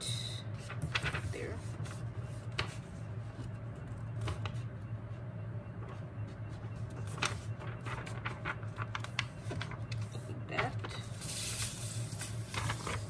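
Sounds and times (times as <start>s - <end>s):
paper rustling and folding: 0.5s - 5.2s, 5.8s - 13.0s.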